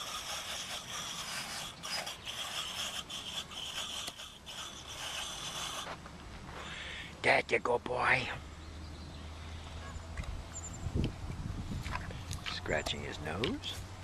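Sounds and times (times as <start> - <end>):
muzzle scraping against bowl: 0.0 - 6.7
horse drinking: 11.8 - 12.6.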